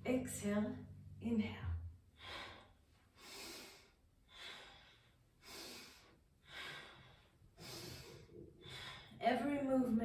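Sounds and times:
woman breathing: 2.0 - 9.4.

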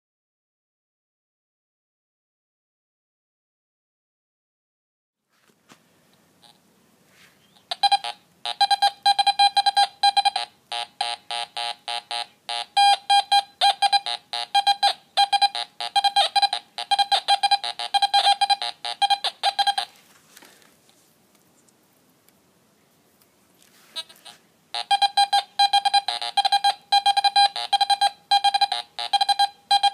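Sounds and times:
metal detector fast high beeps: 7.7 - 10.4, 12.8 - 19.9, 24.8 - 29.9.

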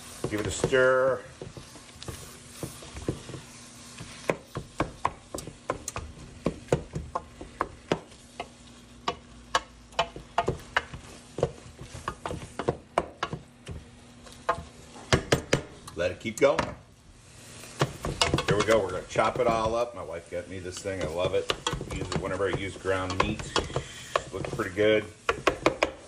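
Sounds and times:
wooden spoon scraping metal pot: 17.2 - 26.0.

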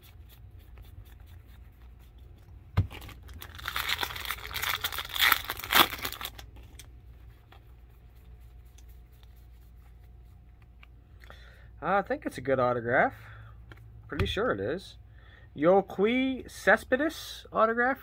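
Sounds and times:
foil wrapper crinkling and tearing: 2.8 - 6.9.

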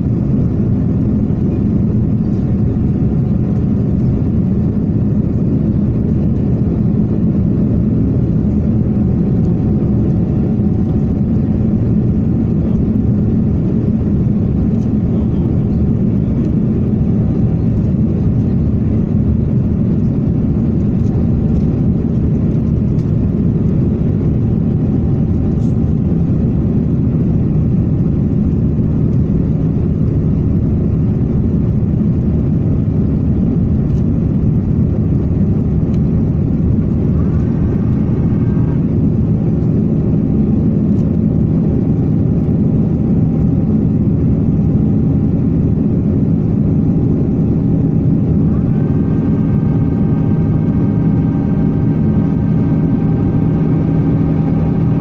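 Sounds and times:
low aircraft cabin drone: 0.0 - 55.0.

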